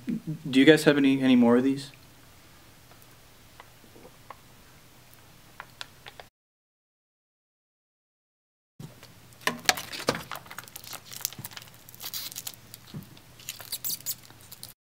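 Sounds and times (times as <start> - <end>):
foil pouch crinkling: 9.5 - 14.8.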